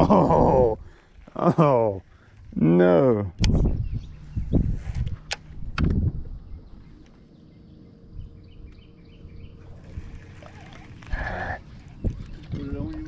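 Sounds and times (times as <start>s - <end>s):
wind and water noise: 3.2s - 13.0s.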